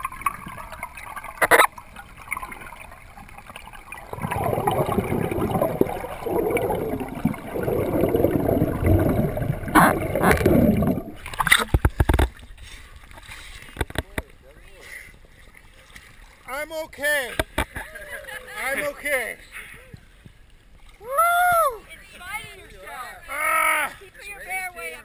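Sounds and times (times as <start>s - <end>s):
water gurgling and rushing: 0.0s - 14.0s.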